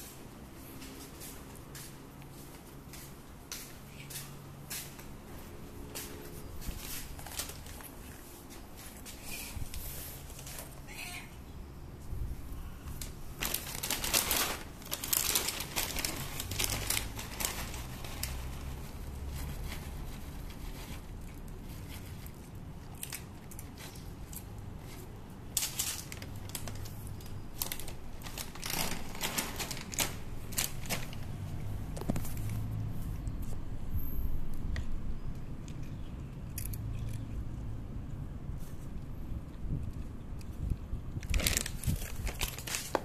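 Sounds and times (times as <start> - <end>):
cat crunching kibble: 12.8 - 33.6, 35.3 - 43.0
plastic bag crinkling: 13.0 - 31.4, 41.2 - 43.0.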